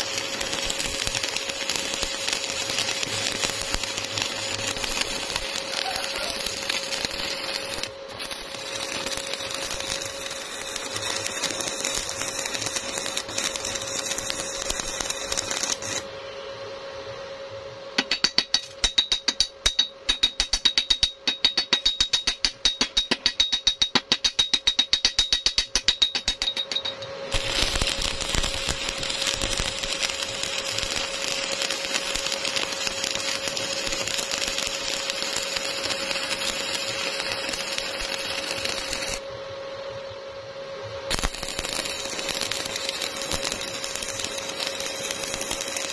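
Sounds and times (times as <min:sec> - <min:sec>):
arc welding crackle: 0:00.0 - 0:16.1, 0:24.6 - 0:39.3, 0:41.1 - 0:45.9
hammer striking metal: 0:18.0 - 0:27.1.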